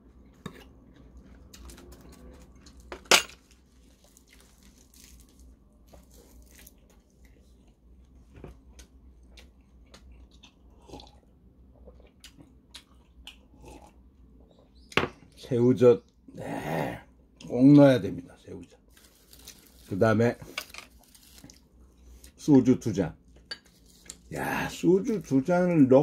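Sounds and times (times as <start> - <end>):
person chewing: 3.8 - 14.3.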